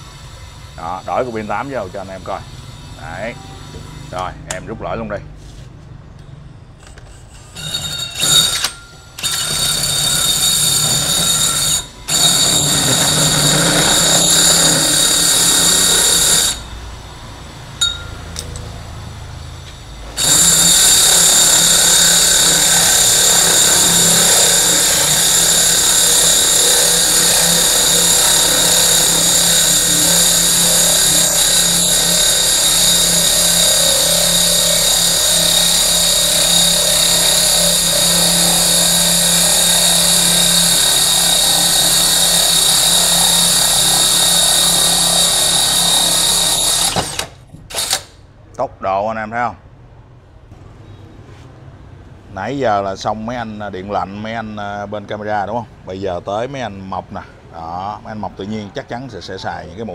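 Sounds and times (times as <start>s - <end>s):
hammer drill boring into brick: 6.8s - 16.7s, 20.2s - 48.2s.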